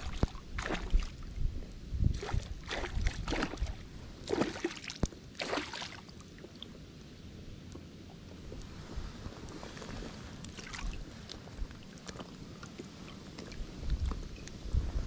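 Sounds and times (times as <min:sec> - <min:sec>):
fish thrashing and splashing: 0:00.0 - 0:01.3, 0:02.2 - 0:06.6, 0:09.8 - 0:14.3.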